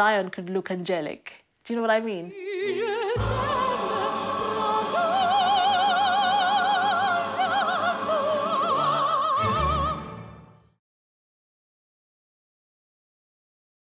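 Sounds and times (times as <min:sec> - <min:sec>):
operatic soprano singing: 0:02.2 - 0:10.6.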